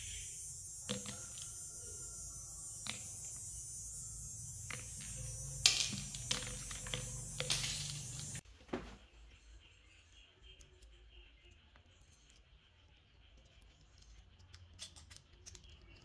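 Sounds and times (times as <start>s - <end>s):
steady hiss: 0.0s - 8.4s.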